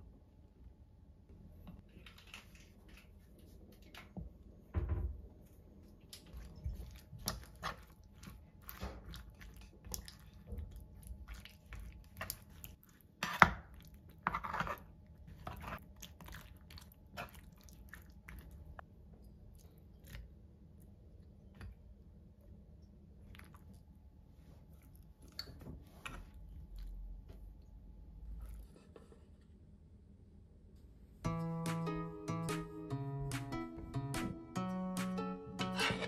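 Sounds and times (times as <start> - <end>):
wet squelches: 6.0 - 18.8
spoon scraping wooden bowl: 14.2 - 15.8.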